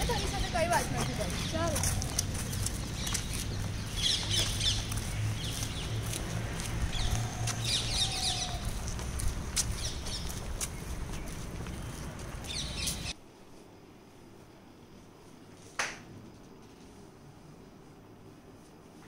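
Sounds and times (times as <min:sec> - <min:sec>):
birds chirping: 0:00.0 - 0:13.2.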